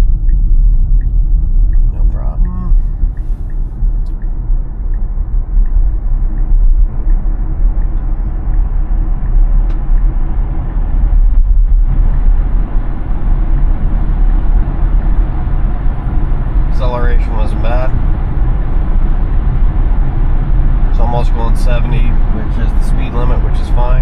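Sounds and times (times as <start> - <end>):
faint regular ticking: 0.0 - 11.7
road and tyre rumble: 0.0 - 24.0.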